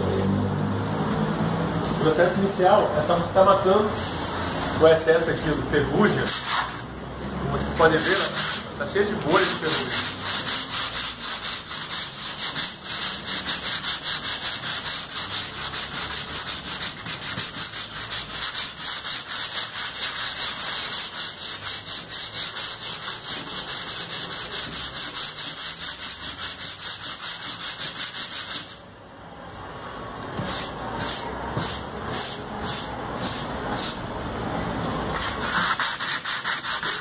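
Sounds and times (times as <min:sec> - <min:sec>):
sandpaper rubbing on painted metal: 0:06.1 - 0:06.8, 0:07.8 - 0:28.8, 0:30.4 - 0:34.0, 0:35.2 - 0:37.0.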